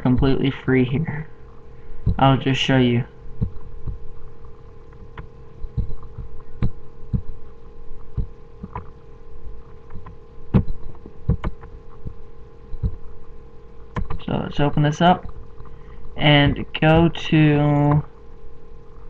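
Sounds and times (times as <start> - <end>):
electrical hum: 0.0 - 19.0
mouse and keyboard clicking: 14.0 - 14.2.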